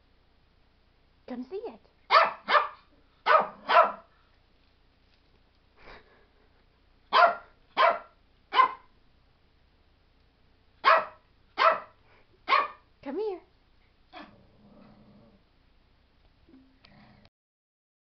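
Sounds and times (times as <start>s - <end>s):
small dog yapping: 2.1s - 4.1s, 7.1s - 8.9s, 10.8s - 11.9s, 12.5s - 12.8s.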